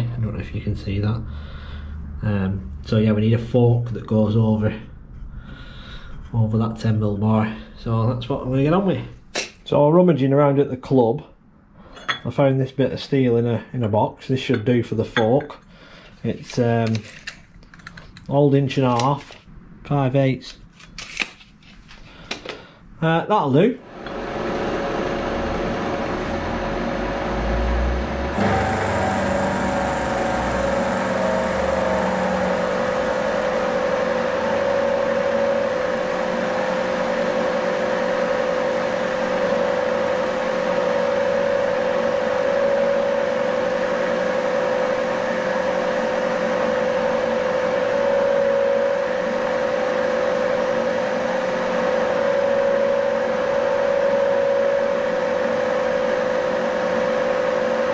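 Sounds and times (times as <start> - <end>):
milling machine cutting steel: 23.9 - 57.9.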